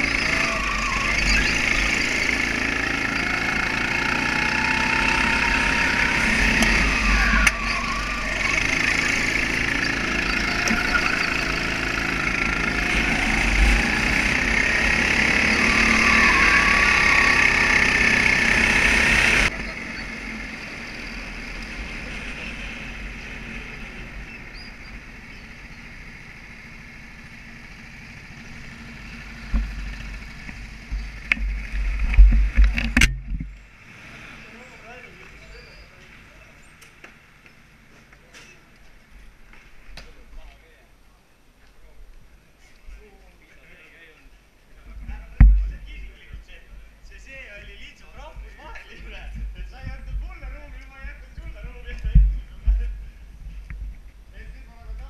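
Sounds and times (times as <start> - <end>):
kart engine racing: 0.0 - 37.9.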